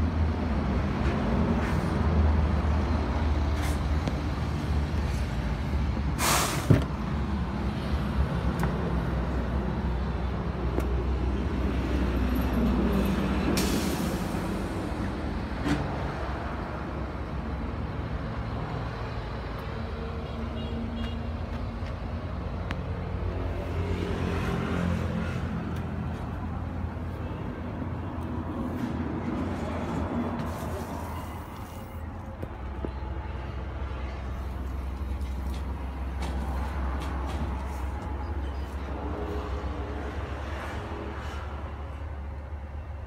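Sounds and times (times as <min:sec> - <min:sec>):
air hisses: 0:06.2 - 0:06.7.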